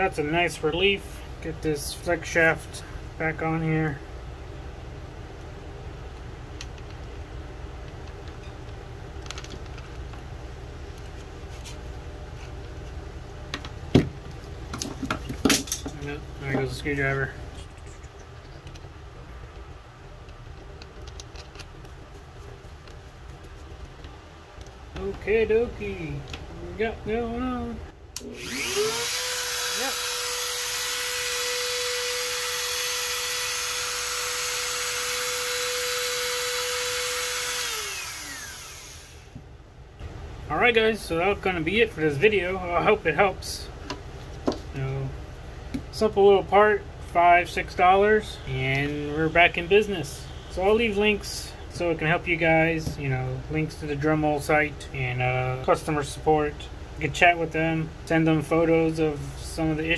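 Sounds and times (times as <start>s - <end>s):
rotary tool motor whining: 28.2s - 39.4s.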